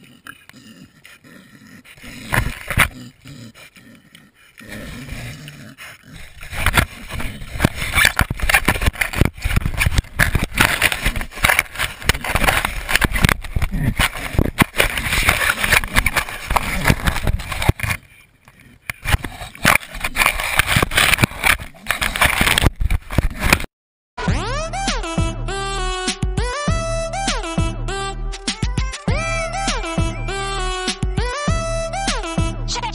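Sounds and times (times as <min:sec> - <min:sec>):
pig knocking and scraping camera: 0:02.0 - 0:03.0, 0:05.1 - 0:23.7.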